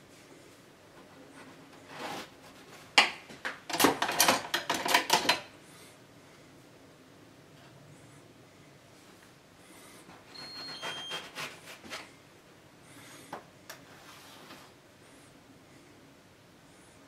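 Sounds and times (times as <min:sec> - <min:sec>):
knife scraping hard surface: 0:10.1 - 0:12.0.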